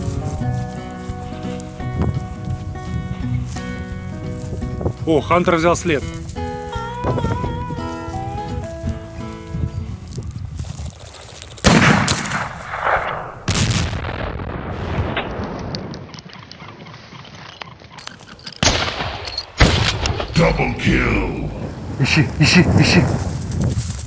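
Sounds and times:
shotgun shots: 11.6s - 15.9s, 18.6s - 20.4s.

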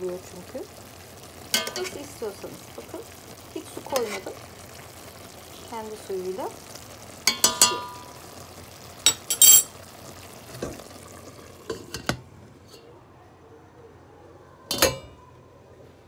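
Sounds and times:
faint sizzle: 0.0s - 16.0s
metal spoon clinking on pot: 1.5s - 2.0s, 7.3s - 8.0s, 9.1s - 9.7s, 14.7s - 15.1s.

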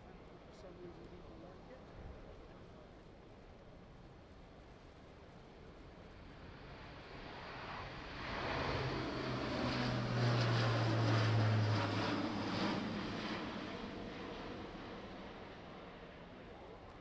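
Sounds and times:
turboprop aircraft passing: 5.4s - 17.0s.

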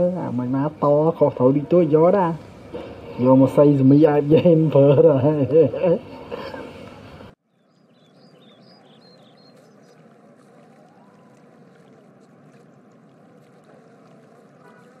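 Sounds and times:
running water stream: 0.0s - 15.0s
bird chirps: 7.5s - 12.0s.

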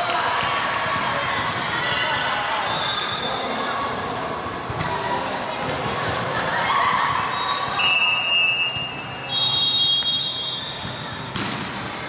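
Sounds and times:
gym hubbub: 0.0s - 12.0s
whistle blasts: 7.3s - 11.2s.

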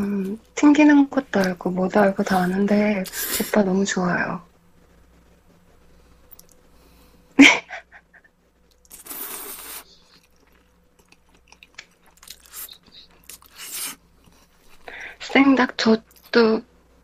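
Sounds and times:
person slurping noodles: 8.9s - 10.7s, 12.2s - 14.0s.

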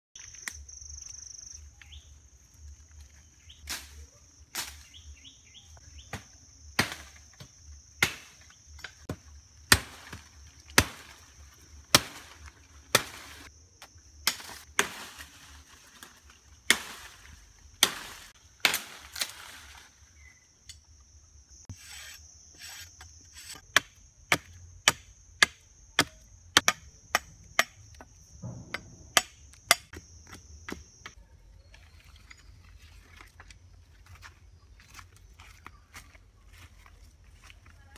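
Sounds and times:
machete chopping wood: 6.0s - 11.1s, 11.9s - 13.4s, 14.2s - 15.1s, 16.7s - 17.1s, 17.8s - 19.3s, 23.5s - 31.2s.

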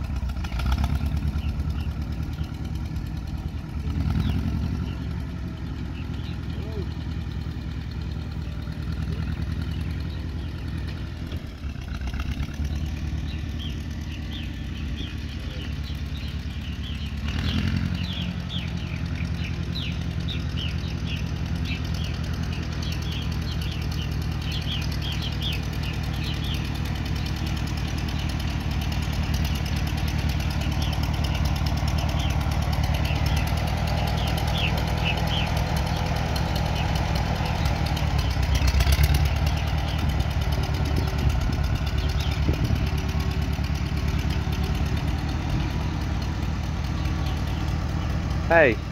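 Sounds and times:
birds chirping: 0.0s - 48.9s
tractor engine running: 0.0s - 48.9s.

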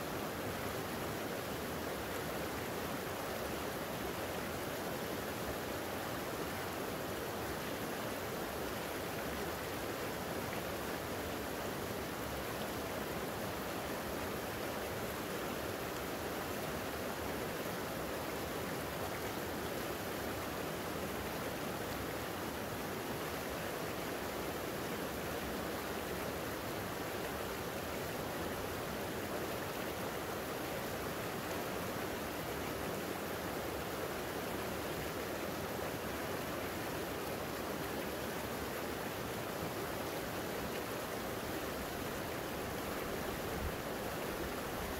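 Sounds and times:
creek water rushing: 0.0s - 44.9s.

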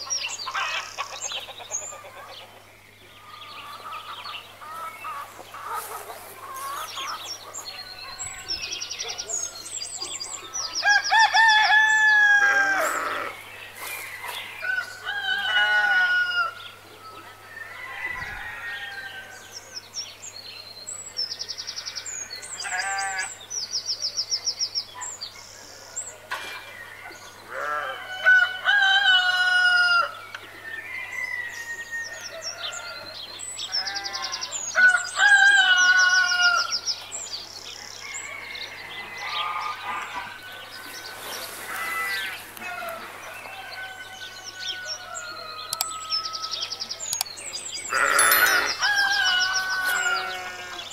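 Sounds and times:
hens clucking: 3.7s - 7.8s
rooster crowing: 10.8s - 13.3s, 14.6s - 16.6s, 17.5s - 19.4s, 41.9s - 46.6s, 47.9s - 50.9s
small birds chirping: 39.0s - 50.9s.

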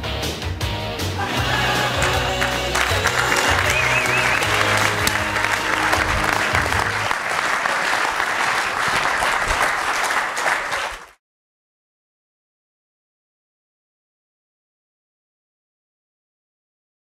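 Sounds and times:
music with strong bass: 0.0s - 7.0s
audience applauding and cheering: 1.2s - 11.2s.

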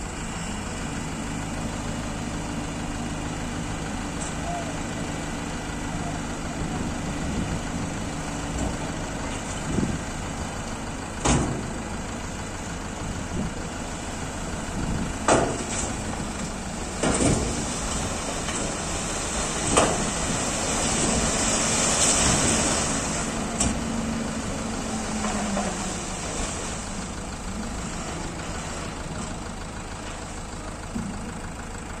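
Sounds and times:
diesel truck engine running: 0.0s - 32.0s
soil and rocks sliding out: 15.5s - 29.4s.

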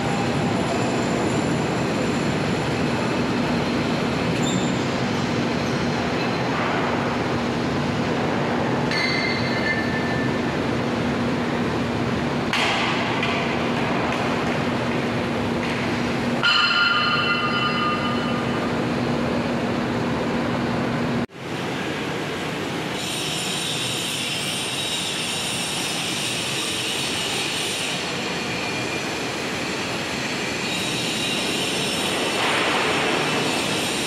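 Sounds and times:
high metallic squealing: 23.0s - 32.4s.

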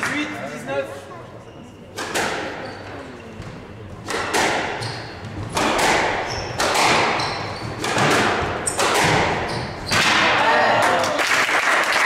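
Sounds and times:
squash ball hits echoing: 2.0s - 2.6s, 3.4s - 10.8s
shoes squeaking on wooden floor: 2.4s - 4.0s, 4.6s - 10.1s.

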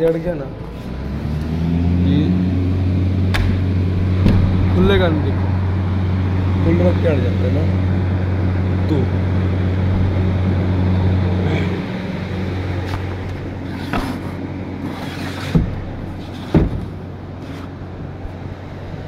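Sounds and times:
low electric hum: 0.0s - 19.0s
dull thumps: 4.2s - 4.8s, 15.5s - 17.0s.

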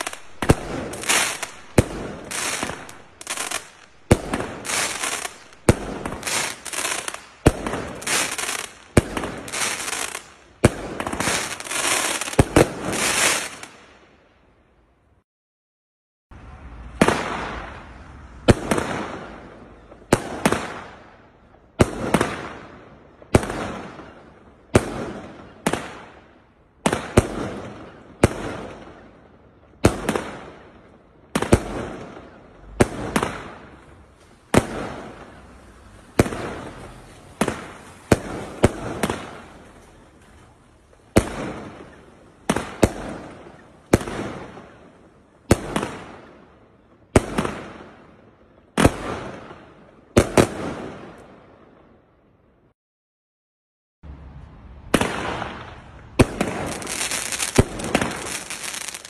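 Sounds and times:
firework barrage bangs: 0.0s - 13.7s, 36.2s - 39.7s, 54.9s - 59.0s.

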